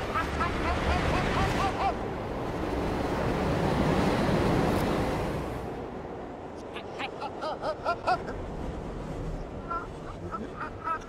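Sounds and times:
reversed man laughing: 0:00.0 - 0:02.2, 0:06.6 - 0:08.6, 0:09.6 - 0:11.0
subway train rumbling: 0:00.0 - 0:08.4.

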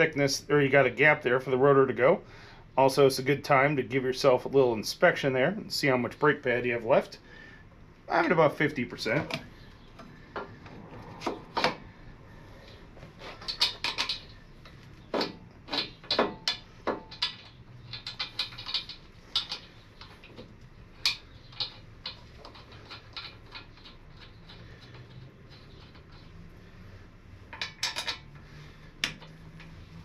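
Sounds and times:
metal clinks and taps: 0:13.4 - 0:26.4, 0:27.5 - 0:28.4.

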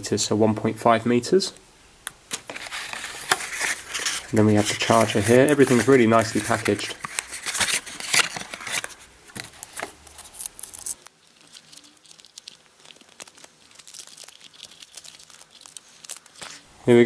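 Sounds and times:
cardboard insert handled: 0:02.3 - 0:10.9
plastic wrapping crinkling: 0:02.3 - 0:16.7.

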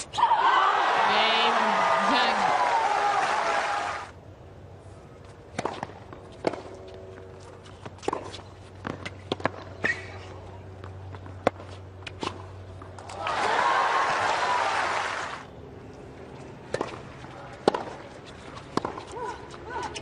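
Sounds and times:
crowd noise: 0:00.0 - 0:04.2
low stadium hum: 0:00.0 - 0:20.0
tennis balls bouncing: 0:05.4 - 0:13.6, 0:15.9 - 0:20.0
players' footsteps: 0:15.9 - 0:20.0.

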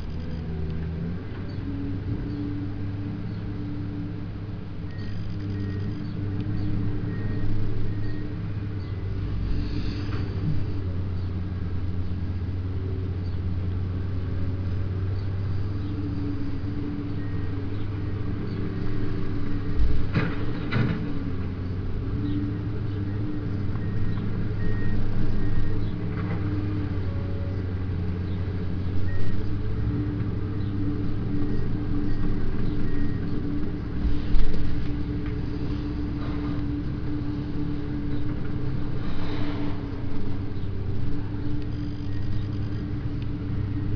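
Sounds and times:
excavator diesel engine running: 0:00.0 - 0:43.9.

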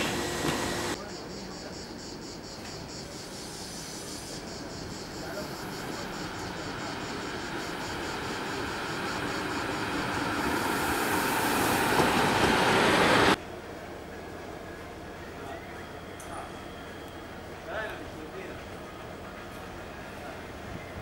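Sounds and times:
train wheel and rail noise: 0:00.0 - 0:21.0
high hiss: 0:02.6 - 0:13.4.

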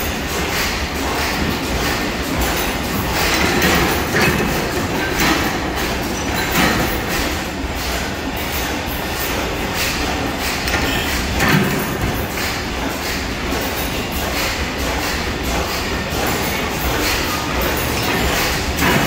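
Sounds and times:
stationary engines clattering: 0:00.0 - 0:19.0.

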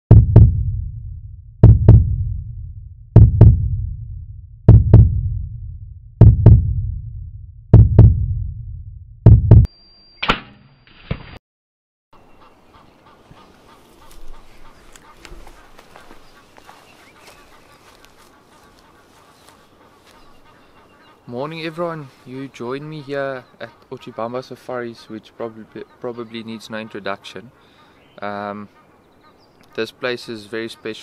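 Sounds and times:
heartbeat double thumps: 0:00.1 - 0:09.7.

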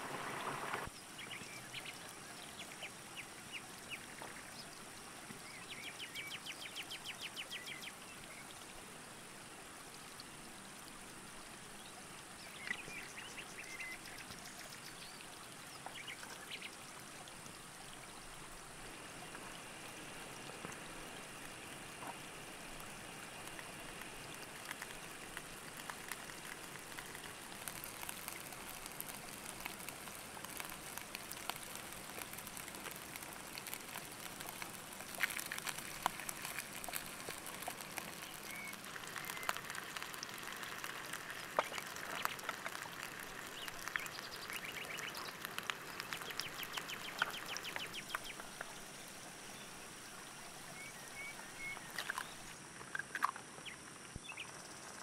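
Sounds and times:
food sizzling and crackling in pan: 0:18.4 - 0:52.6.

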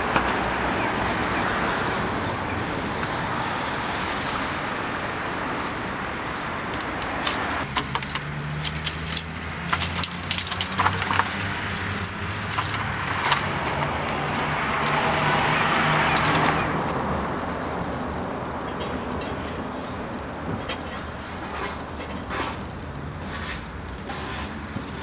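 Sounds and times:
outdoor background noise: 0:00.0 - 0:25.0.

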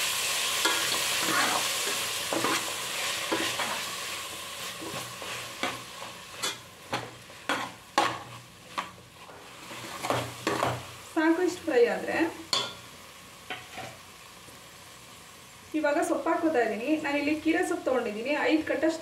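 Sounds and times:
vegetables sizzling in oil: 0:00.0 - 0:19.0.

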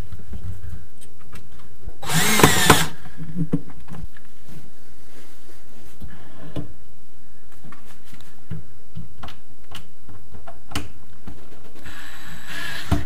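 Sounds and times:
cordless drill driving screw: 0:02.0 - 0:03.0.

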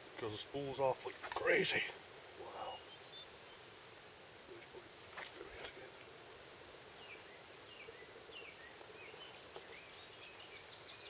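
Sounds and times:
small bird chirping: 0:06.9 - 0:11.0.

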